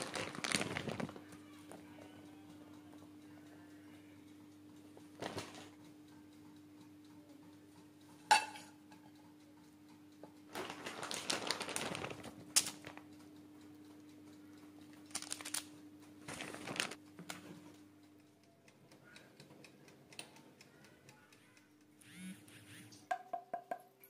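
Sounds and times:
dish clinking: 8.3s - 9.1s.

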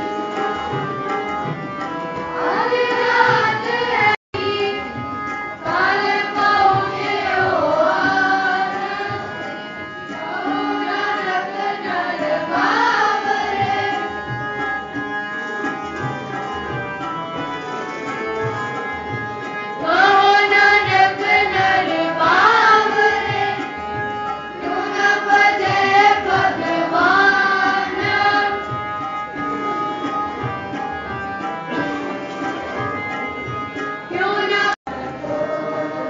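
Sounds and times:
harmonium: 0.0s - 36.0s
tabla: 0.0s - 36.0s
voices singing a hymn: 2.3s - 14.4s, 19.7s - 28.8s, 34.1s - 36.0s.

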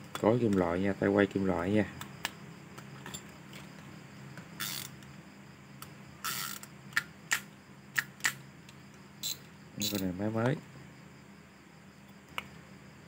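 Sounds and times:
fishing reel gears turning: 4.6s - 5.0s, 6.2s - 6.7s, 9.2s - 10.1s
sharp clicks: 5.8s - 10.1s
short rasps: 9.2s - 10.1s.

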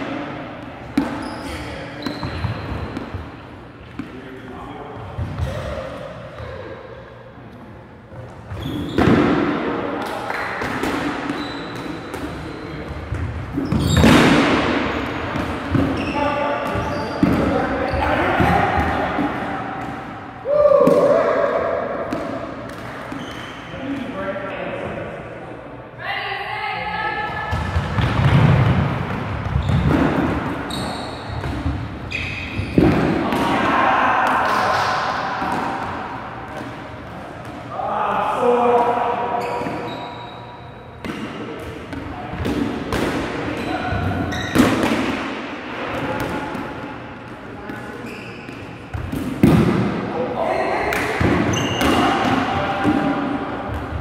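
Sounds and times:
players shouting: 33.1s - 35.8s.

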